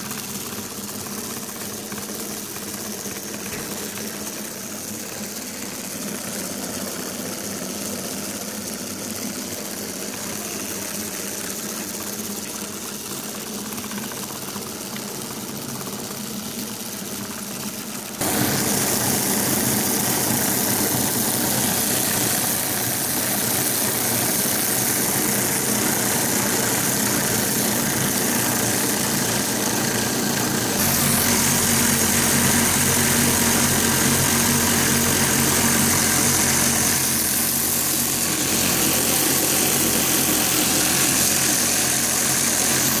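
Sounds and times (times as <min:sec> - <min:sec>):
gear reducer mechanical whir: 0:18.2 - 0:43.0.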